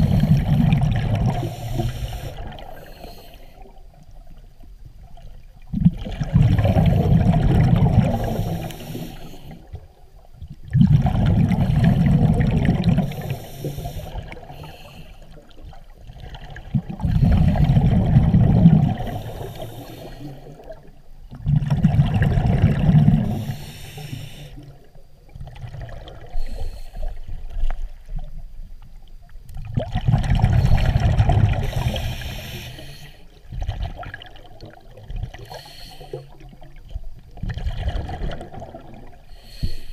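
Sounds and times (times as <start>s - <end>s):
diver's breath bubbling underwater: 0.0s - 3.2s, 5.7s - 9.6s, 10.7s - 15.0s, 16.2s - 20.8s, 21.4s - 24.7s, 29.7s - 32.9s.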